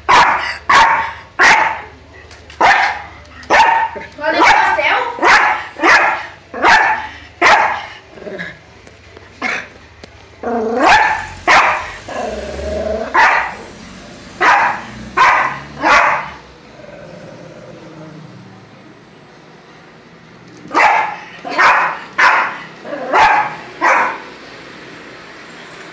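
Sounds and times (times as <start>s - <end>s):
small dog barking: 0.1s - 1.9s, 2.6s - 7.9s, 10.8s - 12.0s, 13.1s - 13.7s, 14.4s - 16.4s, 20.7s - 24.3s.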